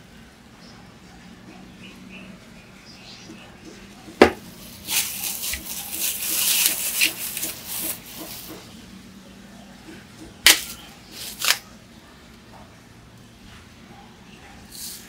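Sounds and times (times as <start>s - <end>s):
sharp plastic crackles: 4.2s - 8.6s, 10.4s - 11.7s
bubble wrap crinkling: 4.6s - 8.6s, 10.5s - 11.6s.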